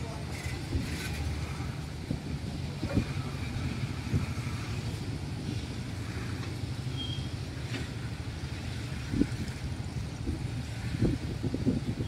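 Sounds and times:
steel wheels rumbling on rail: 0.0 - 12.0
high squeak: 6.9 - 7.4.

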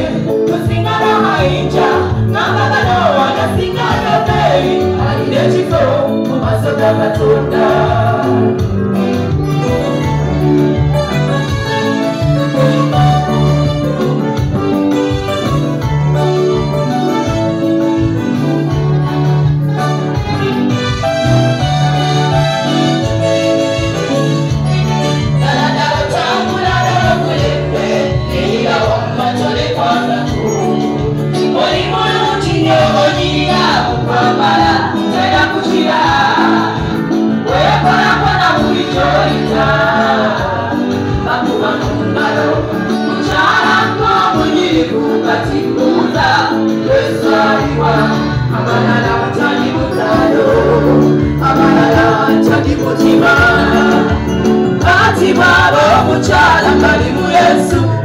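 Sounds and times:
women's choir singing gospel: 0.0 - 9.9, 22.0 - 58.0
band with bass and beat: 0.0 - 58.0.

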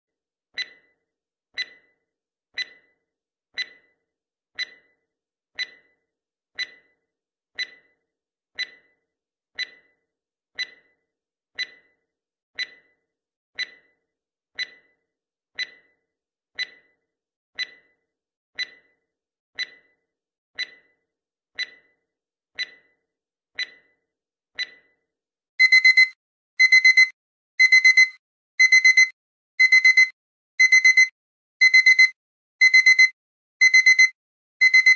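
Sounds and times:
timer ticking: 0.6 - 1.0, 1.6 - 2.0, 2.6 - 3.0, 3.6 - 4.0, 4.6 - 5.0, 5.6 - 6.0, 6.6 - 7.0, 7.6 - 8.0, 8.6 - 9.0, 9.6 - 10.0, 10.6 - 11.0, 11.6 - 12.0, 12.6 - 13.0, 13.6 - 14.0, 14.6 - 15.0, 15.6 - 16.0, 16.6 - 17.0, 17.6 - 18.0, 18.6 - 19.0, 19.6 - 20.0, 20.6 - 21.0, 21.6 - 22.0, 22.6 - 23.0, 23.6 - 24.0, 24.6 - 24.9, 25.6 - 34.9
digital alarm beeps: 25.6 - 34.9.

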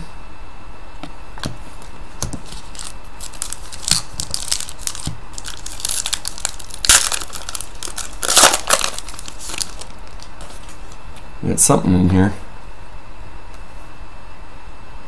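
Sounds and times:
foil pack crinkling and tearing: 2.4 - 11.0.

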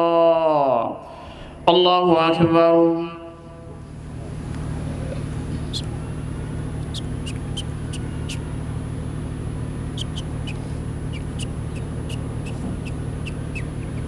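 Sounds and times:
steady low hum: 3.3 - 14.0
small birds chirping: 5.2 - 8.7, 9.7 - 14.0.

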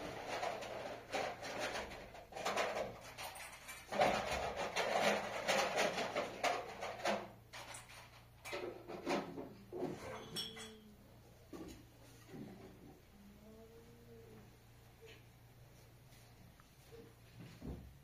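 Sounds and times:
pots and dishes clattering: 0.0 - 10.9.

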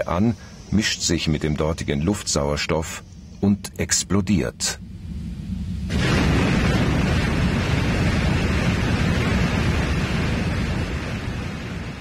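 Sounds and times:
explosion and fire rushing: 5.7 - 12.0.

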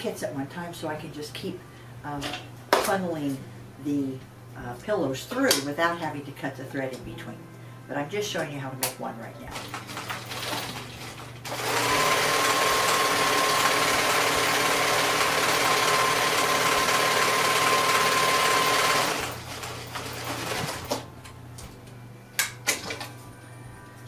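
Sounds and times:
sewing machine stitching: 11.4 - 21.0.

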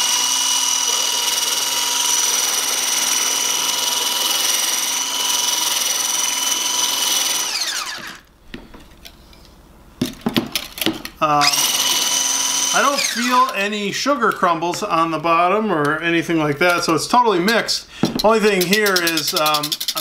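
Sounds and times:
hand mixer motor whine: 0.0 - 8.3, 11.4 - 13.6.

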